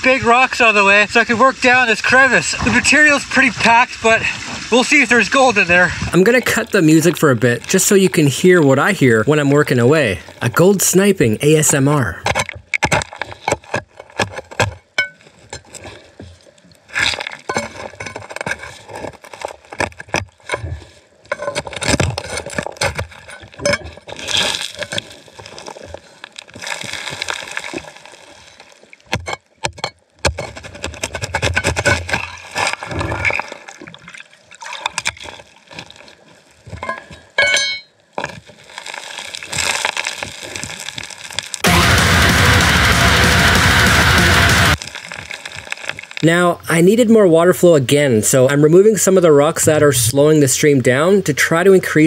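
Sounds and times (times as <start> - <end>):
stones and grit clattering: 12.2 - 15.9, 17.0 - 33.4, 36.7 - 41.7, 44.8 - 46.3.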